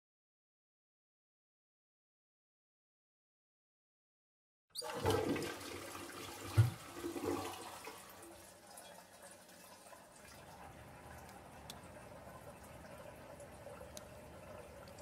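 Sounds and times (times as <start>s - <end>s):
toilet flushing: 4.8s - 15.0s.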